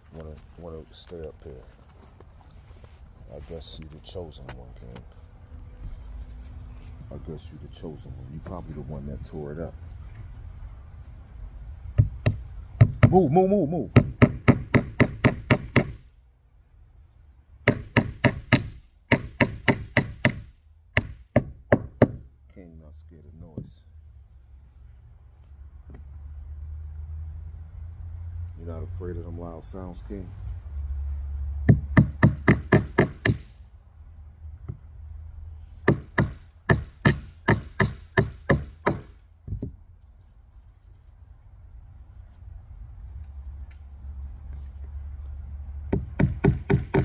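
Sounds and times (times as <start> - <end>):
hammer striking nails: 12.0 - 13.2, 13.9 - 16.0, 17.6 - 22.3, 31.7 - 33.5, 35.8 - 39.7, 45.9 - 47.0
hammer striking: 35.8 - 39.2.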